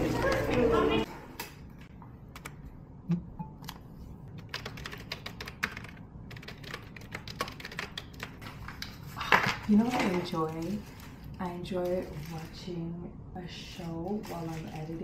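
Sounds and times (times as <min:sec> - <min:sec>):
typing on keyboard: 0:04.4 - 0:08.6.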